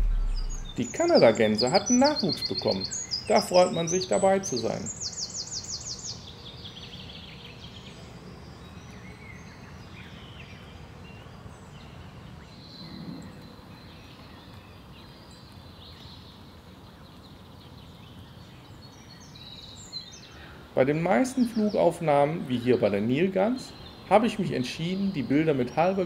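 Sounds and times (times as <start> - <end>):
bird chirps: 0.0 - 10.7
low background hiss: 0.0 - 26.0.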